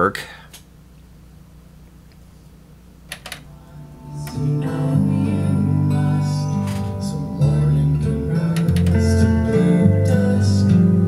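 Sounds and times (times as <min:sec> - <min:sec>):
music from tape: 0:03.4 - 0:11.0.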